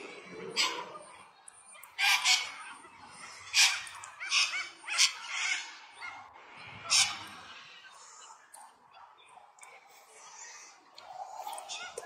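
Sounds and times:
parrots screeching squawks: 1.8s - 6.2s.

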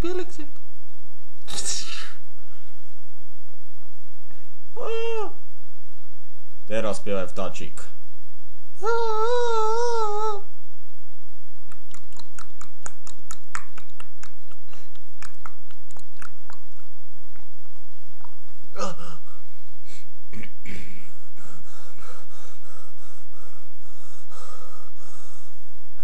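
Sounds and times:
lip smacks: 11.7s - 17.5s
tongue clicks: 11.7s - 17.5s
rhythmic breathy puffs: 11.8s - 16.9s, 18.8s - 26.0s.

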